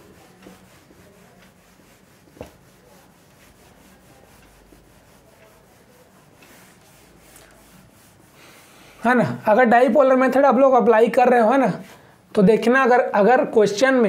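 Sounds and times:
duster rubbing on whiteboard: 0.0s - 9.2s.

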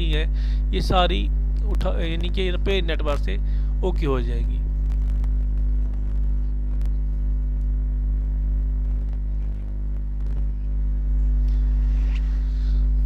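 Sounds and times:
electrical mains hum: 0.0s - 13.0s.

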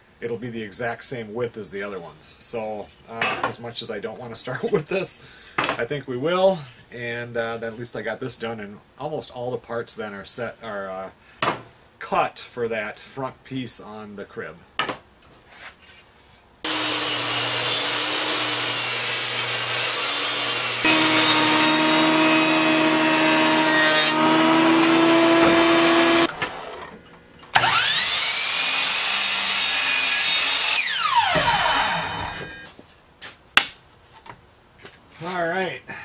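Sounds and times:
machine motor winding up and down: 16.7s - 26.9s, 27.6s - 32.6s
woodworking machine whine: 16.7s - 26.9s, 27.6s - 32.6s.

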